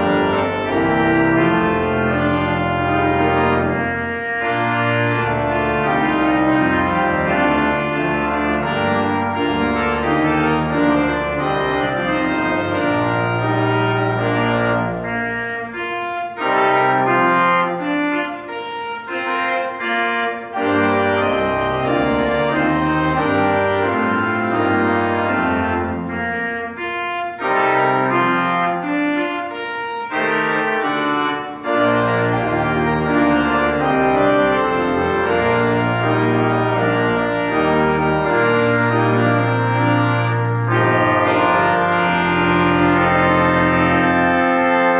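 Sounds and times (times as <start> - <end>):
church organ playing chords: 0.0 - 44.9.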